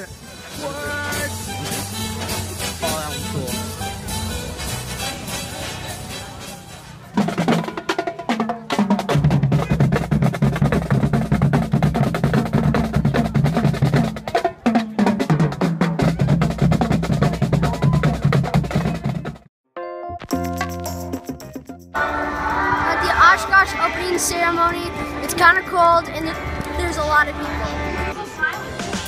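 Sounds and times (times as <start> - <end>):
background music: 0.0 - 7.2, 19.8 - 29.0
booming bass drum beats: 7.2 - 19.5.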